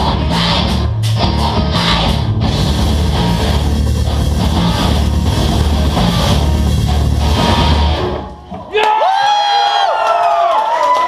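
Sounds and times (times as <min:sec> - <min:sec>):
heavy rock band playing: 0:00.0 - 0:08.6.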